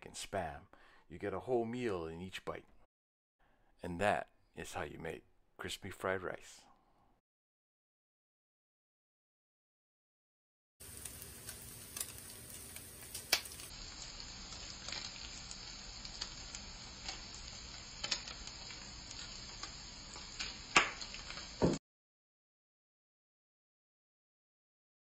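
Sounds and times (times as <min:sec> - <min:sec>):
meat sizzling in a frying pan: 0:10.8 - 0:21.8.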